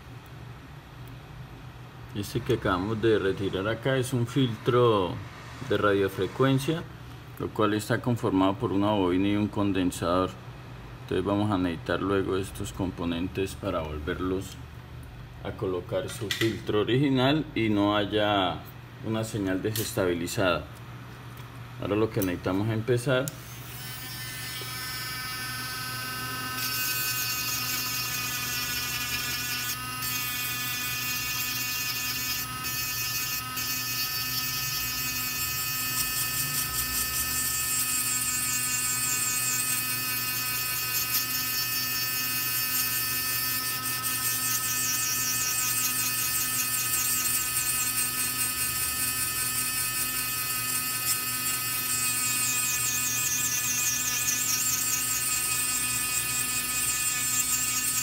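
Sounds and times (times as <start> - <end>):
rotary tool grinding with whine: 23.3 - 58.0.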